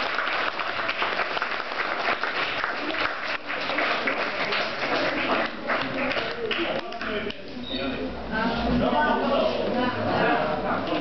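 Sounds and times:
children applauding: 0:00.0 - 0:07.1.

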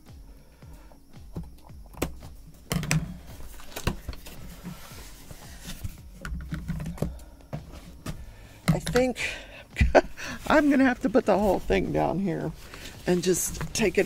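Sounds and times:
cardboard box scraping and rustling: 0:03.4 - 0:06.1.

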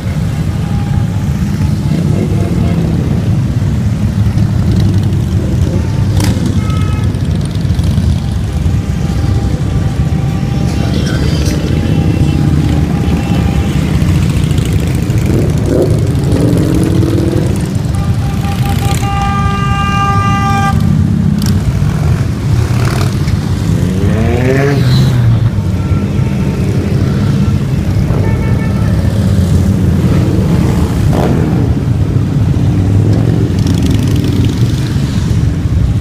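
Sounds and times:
motorcycles rumbling past: 0:10.9 - 0:19.0, 0:29.0 - 0:35.7
motorcycle engine revving: 0:10.9 - 0:19.2, 0:20.8 - 0:25.5.

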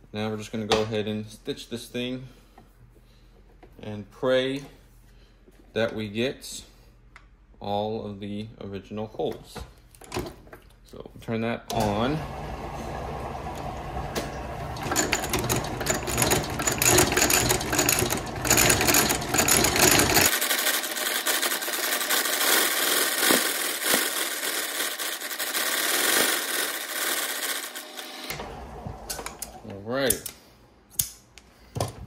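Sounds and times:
stitching machine clatter: 0:14.6 - 0:28.4.

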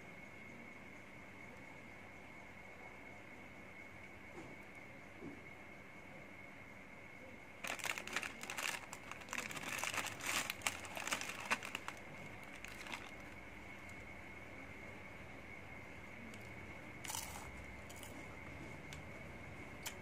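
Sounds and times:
plastic packaging crinkling: 0:07.6 - 0:14.0.

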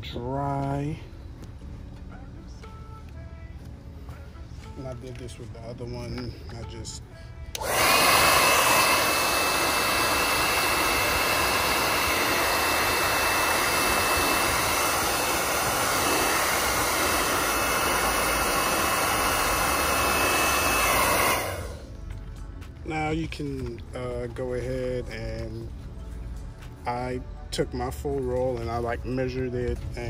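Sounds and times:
hair dryer blowing with high whine: 0:07.5 - 0:22.0.

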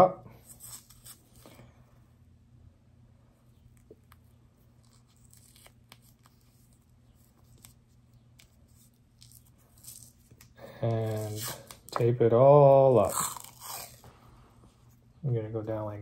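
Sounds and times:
low steady hum: 0:00.0 - 0:16.0
tape peeling off roll: 0:03.8 - 0:12.0.

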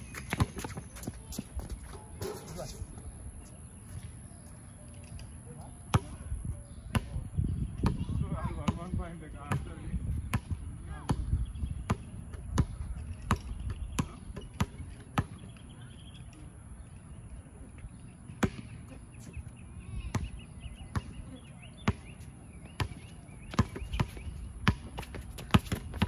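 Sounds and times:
basketball bouncing on hard court: 0:00.0 - 0:02.4, 0:10.3 - 0:15.4, 0:18.4 - 0:18.7, 0:20.9 - 0:21.2, 0:21.8 - 0:22.2, 0:22.8 - 0:26.0.

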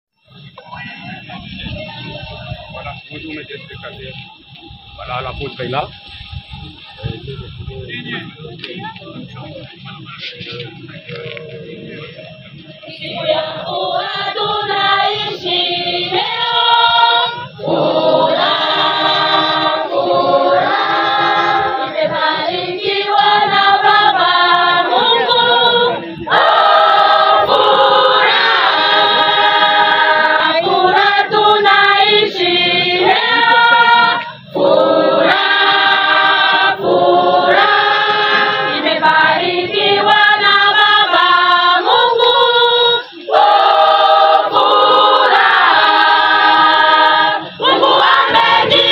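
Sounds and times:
women's choir singing: 0:12.4 - 0:48.9.

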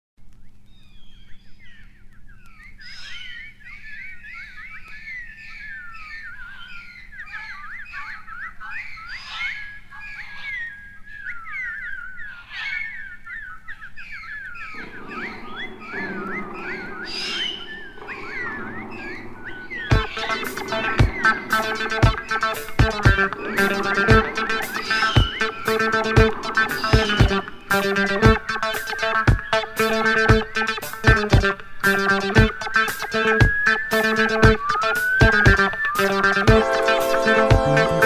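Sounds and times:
birds chirping and whistling: 0:00.4 - 0:38.0
low full sound: 0:14.7 - 0:29.2.

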